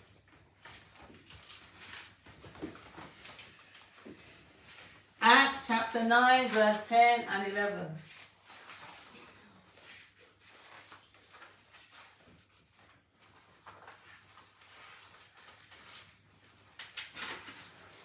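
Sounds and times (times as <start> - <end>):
rustling: 0.0 - 5.2.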